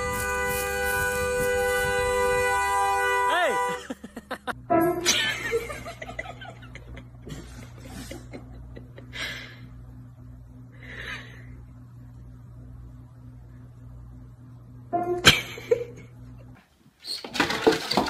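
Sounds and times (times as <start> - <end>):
steady low hum: 0.0 - 16.6
person laughing loudly: 3.6 - 9.4.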